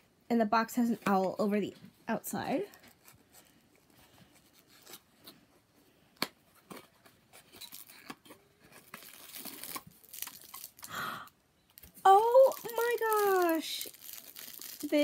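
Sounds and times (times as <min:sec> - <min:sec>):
packaging rustles and clicks: 0:06.2 - 0:10.9, 0:11.6 - 0:15.0
plastic wrapper crinkle: 0:06.8 - 0:15.0.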